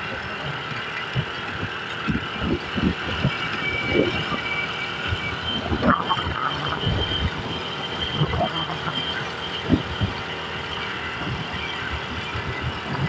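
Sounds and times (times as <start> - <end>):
vehicle road noise: 0.0 - 13.0
thin high tone: 2.3 - 13.0.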